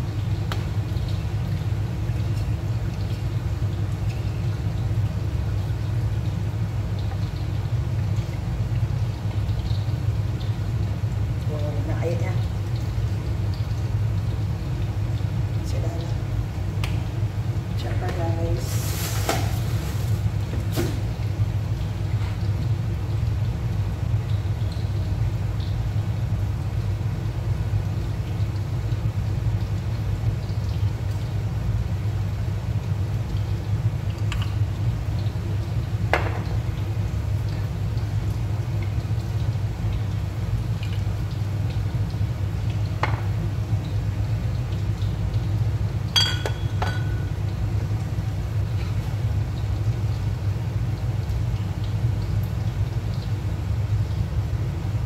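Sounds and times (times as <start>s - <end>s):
low rumbling hum: 0.0s - 55.0s
ringing clink: 46.2s - 47.1s.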